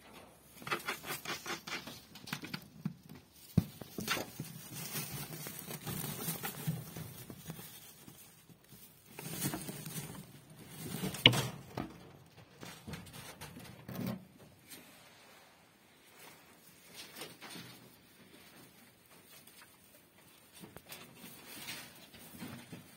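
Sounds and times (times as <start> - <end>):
straw rustling: 2.8 - 11.7.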